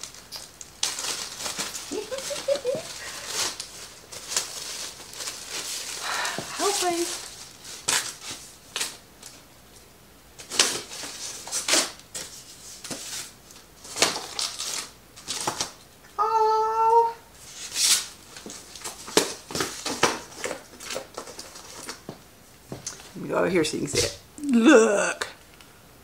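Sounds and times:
plastic and cardboard crinkling: 0.0 - 9.4, 10.4 - 15.8, 17.4 - 23.2.

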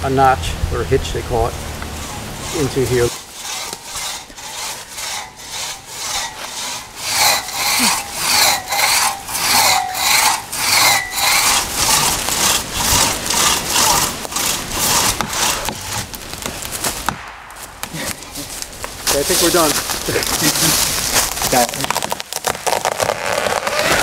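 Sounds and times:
crosscut saw rasping through wood: 2.0 - 16.2.

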